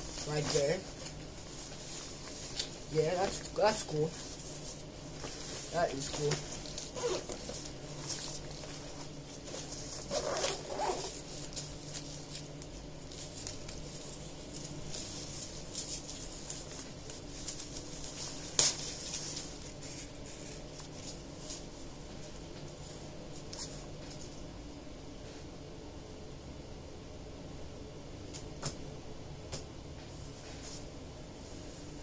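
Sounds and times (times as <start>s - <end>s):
backpack rustling and clicks: 6.3s - 12.1s.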